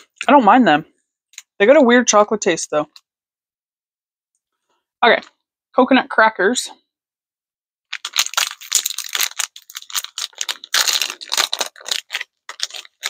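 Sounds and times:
plastic wrapper crinkling and tearing: 7.9 - 13.0.

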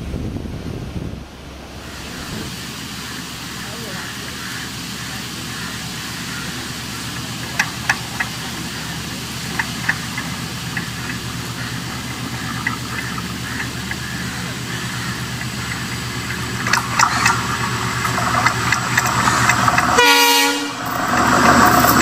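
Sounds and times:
locomotive engine idling: 0.9 - 22.0.

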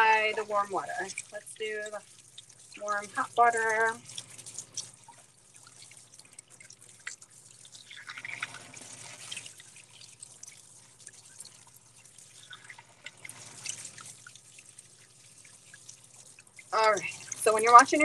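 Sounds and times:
kitchen faucet running: 0.0 - 18.0
water splashing into sink: 0.0 - 18.0.

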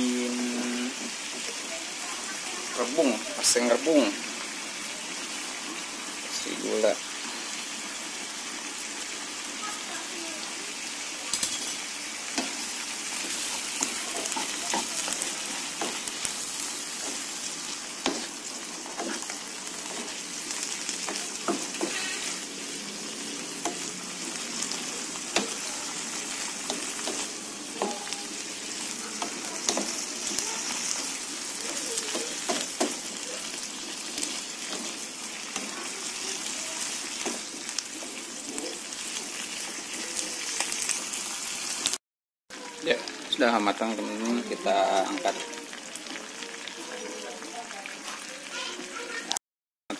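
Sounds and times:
food sizzling in a frying pan: 0.0 - 49.4
spatula scraping pan: 11.6 - 40.0.

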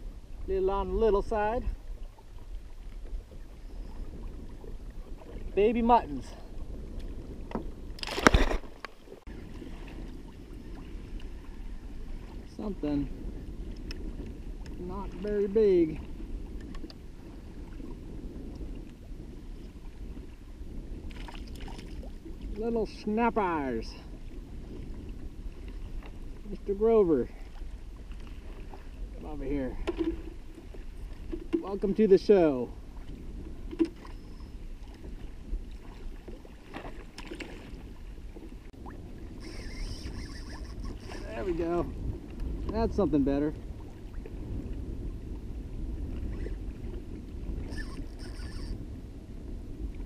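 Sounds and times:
water lapping against kayak hull: 0.0 - 50.0
wind buffeting microphone: 0.0 - 50.0
faint ticks: 13.7 - 14.8, 16.6 - 17.0.

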